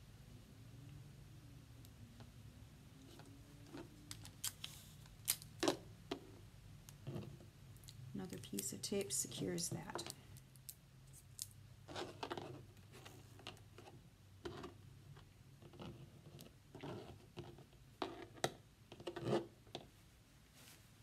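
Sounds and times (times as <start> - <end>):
rustles of handling thread: 19.9 - 21.0.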